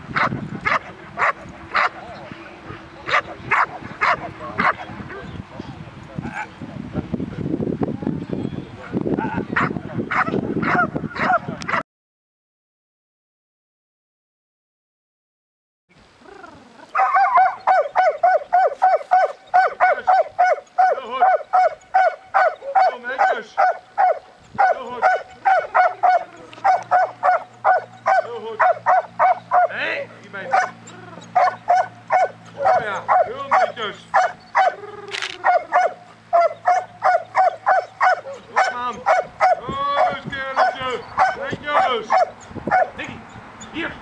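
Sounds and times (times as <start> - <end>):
dog yelping and whining: 16.4 - 29.8, 30.5 - 43.0.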